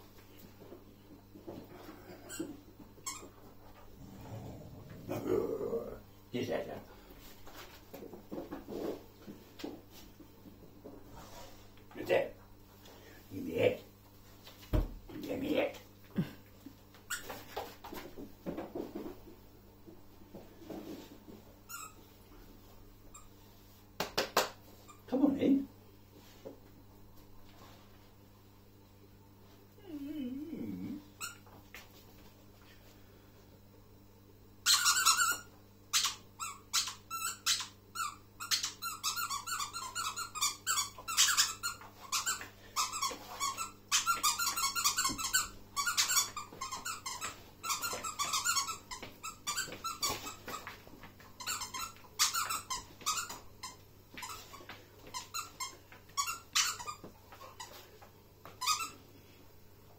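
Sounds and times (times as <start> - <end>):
squeaky dog toy squeaking: 34.7 - 35.4, 36.0 - 50.4, 51.4 - 54.4, 55.2 - 57.0.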